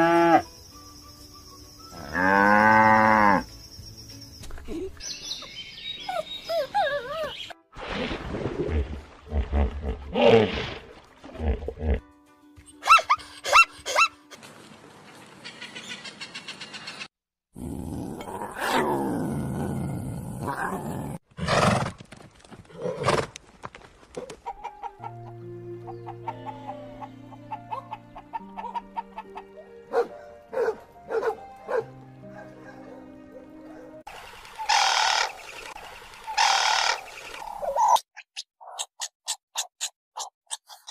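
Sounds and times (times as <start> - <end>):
animal calls: 34.6 - 35.6, 36.2 - 38.0.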